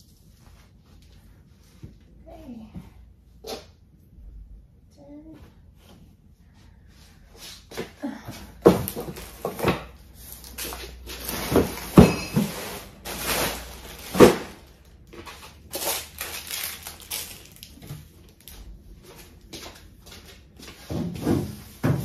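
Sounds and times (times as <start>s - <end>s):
clothes rustling: 10.2s - 17.8s.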